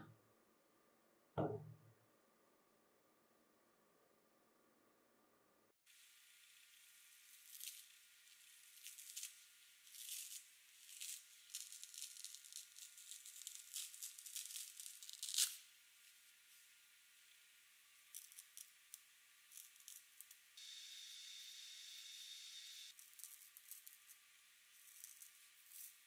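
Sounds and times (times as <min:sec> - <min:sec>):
scouring pad tearing: 0:08.7 - 0:15.6.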